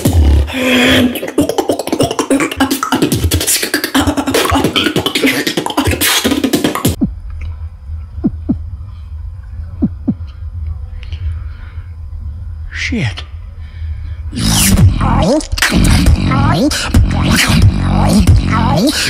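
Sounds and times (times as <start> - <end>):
beatboxing: 0.0 - 7.1, 14.3 - 19.0
low steady rumble: 7.0 - 18.6.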